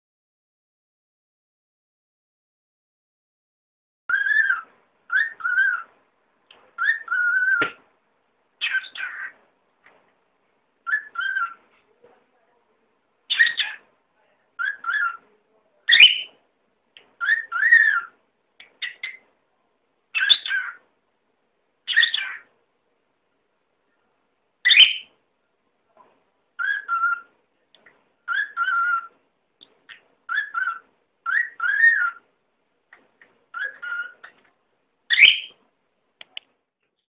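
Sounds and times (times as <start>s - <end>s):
cockatiel whistling: 4.1s - 5.9s, 6.8s - 7.8s, 10.8s - 11.6s, 17.2s - 18.1s, 24.6s - 25.1s, 26.6s - 27.3s, 28.3s - 29.1s, 30.3s - 32.2s, 33.5s - 34.3s, 35.1s - 35.6s.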